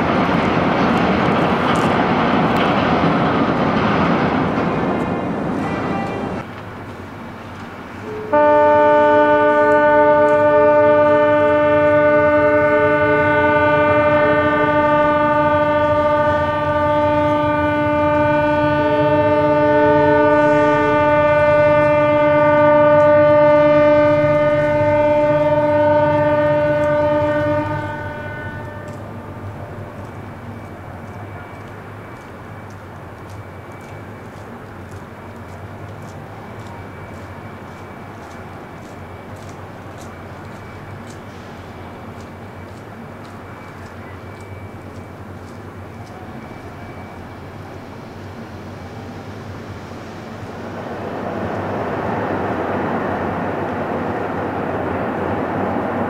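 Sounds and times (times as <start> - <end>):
harbour background noise: 0.0 - 56.0
higher ship horn: 5.5 - 6.5, 8.0 - 29.6
long loud ship horn blast: 5.6 - 6.5, 8.0 - 29.5.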